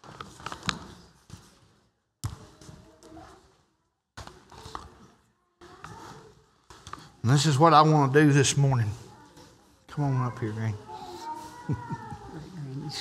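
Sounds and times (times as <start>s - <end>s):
murmur of people: 4.1s - 13.0s.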